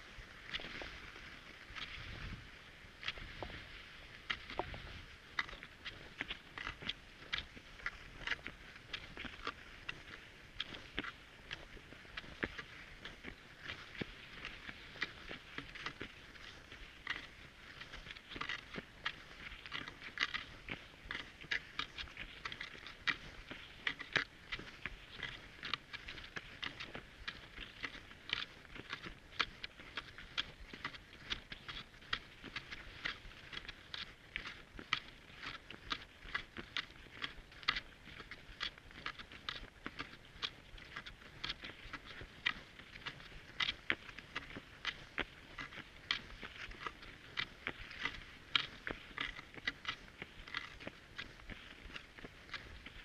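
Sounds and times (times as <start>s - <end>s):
soft hiss of skis: 0.0s - 24.1s
skis crunching on snow: 0.0s - 53.0s.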